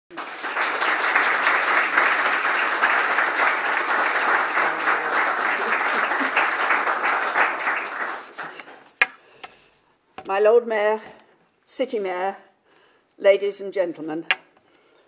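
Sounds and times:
audience applauding: 0.1 - 9.0.

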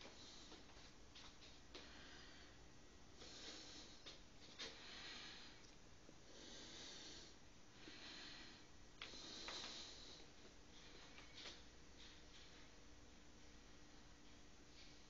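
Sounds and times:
faint breathing: 0.0 - 1.0, 1.7 - 11.6.

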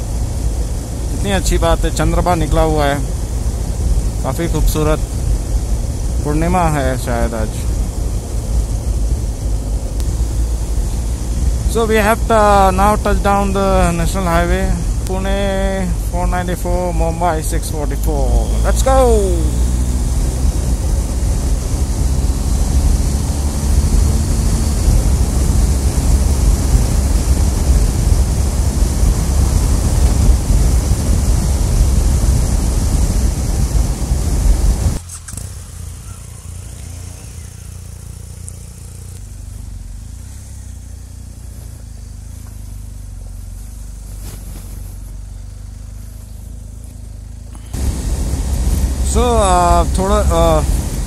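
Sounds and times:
wind rush and buffeting: 0.0 - 35.0, 47.7 - 51.0
low engine hum: 0.0 - 51.0
motorcycle engine and tyre noise: 0.0 - 51.0.

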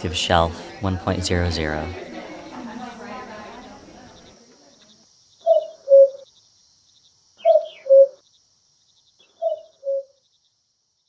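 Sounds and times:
cuckoo calling: 2.3 - 6.3, 7.4 - 8.2, 9.2 - 10.2.

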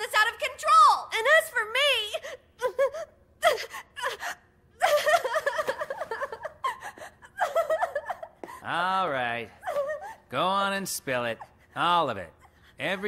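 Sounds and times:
woman gasping and breathing hard: 2.1 - 5.4, 6.0 - 8.6.

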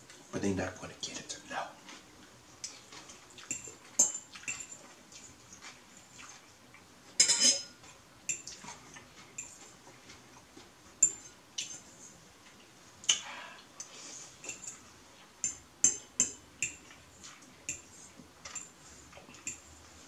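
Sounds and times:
fork clinking against bowl: 3.5 - 4.8, 7.2 - 7.7, 9.4 - 9.6, 11.0 - 11.8, 14.4 - 14.8, 15.4 - 17.0, 18.5 - 18.7.

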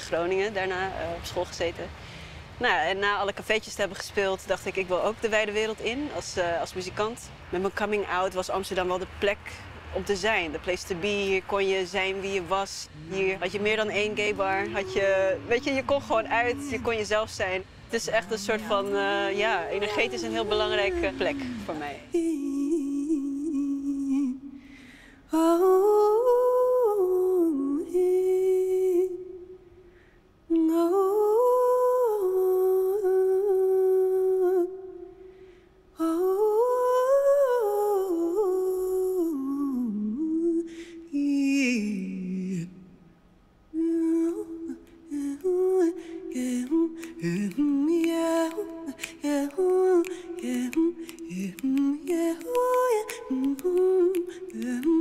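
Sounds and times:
woman humming: 12.9 - 17.2, 18.0 - 24.5.

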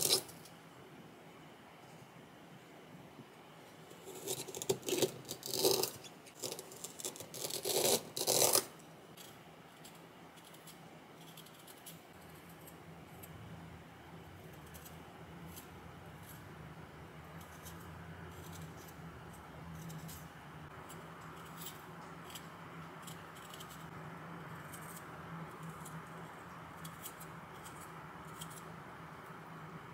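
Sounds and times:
knife scraping ginger skin: 0.0 - 0.5, 4.0 - 13.4, 14.4 - 16.6, 17.3 - 28.8.

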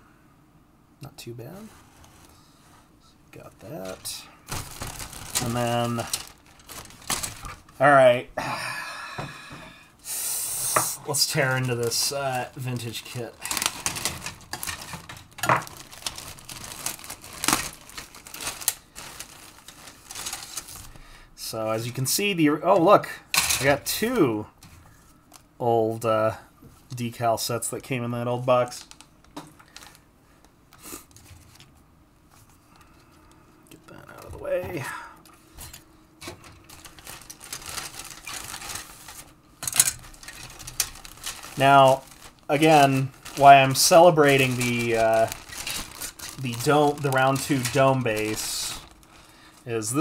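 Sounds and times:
plastic bag crinkling: 3.4 - 8.2, 11.0 - 21.1, 28.6 - 30.1, 35.5 - 50.0
sharp plastic crackles: 3.7 - 8.0, 11.1 - 21.0, 28.6 - 31.8, 32.7 - 50.0
plastic sprues rustling and clicking: 3.8 - 7.8, 11.1 - 21.0, 28.6 - 31.8, 35.2 - 50.0.

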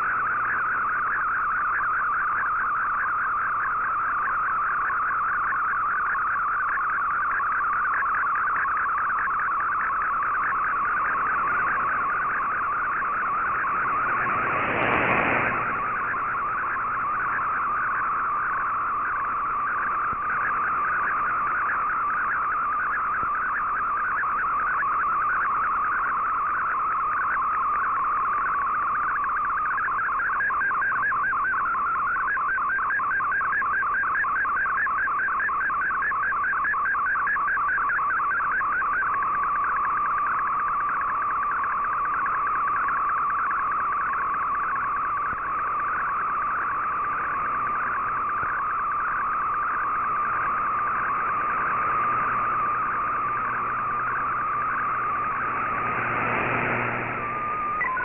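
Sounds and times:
warbling digital radio tones: 0.0 - 58.0
burst of radio noise: 9.2 - 23.6, 43.5 - 58.0.

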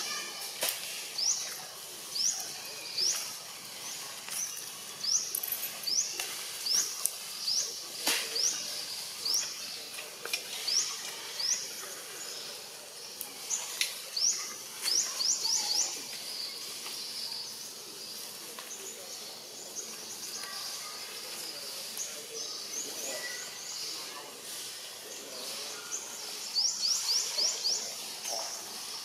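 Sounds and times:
steady high hiss: 0.0 - 29.0
bird chirping: 25.0 - 28.8.

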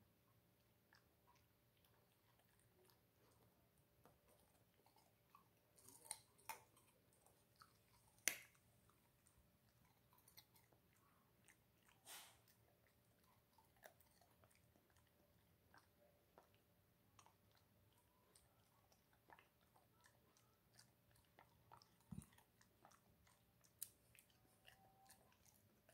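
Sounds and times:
dog chewing carrot: 0.9 - 25.9.

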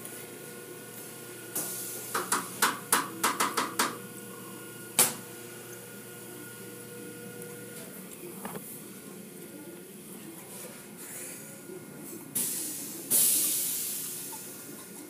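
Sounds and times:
car wash machinery humming: 0.0 - 15.0.

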